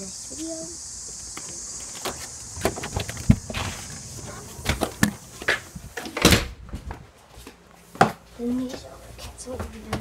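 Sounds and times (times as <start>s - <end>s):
insects droning: 0.0s - 6.5s.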